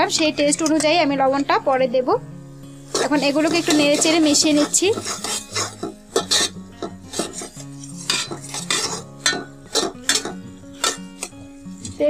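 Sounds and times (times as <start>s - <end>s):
metal spatula scraping a pot: 2.8s - 12.0s.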